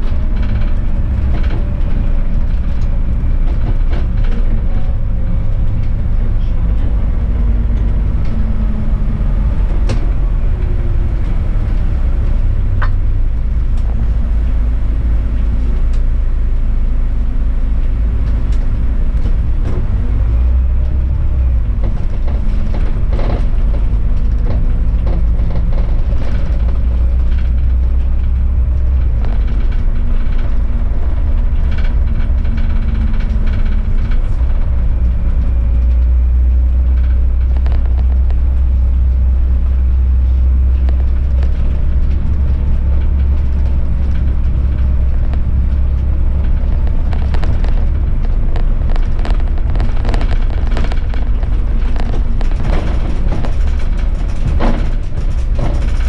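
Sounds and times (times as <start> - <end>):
bus engine drone: 0.0 - 56.0
road rumble: 0.0 - 56.0
short rattles and clicks: 18.2 - 56.0.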